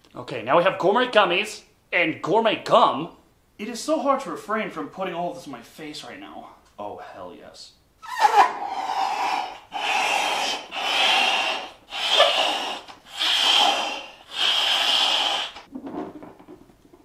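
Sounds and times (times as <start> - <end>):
breath puffs into balloon: 8.0 - 15.7.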